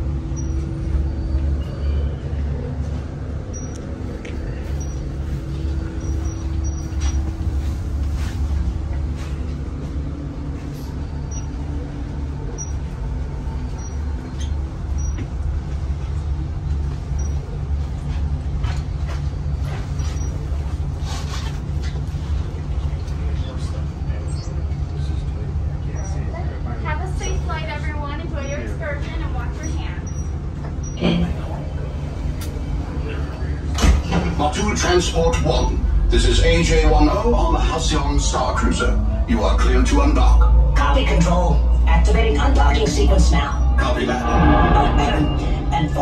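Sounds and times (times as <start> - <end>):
truck engine idling: 25.0 - 46.0.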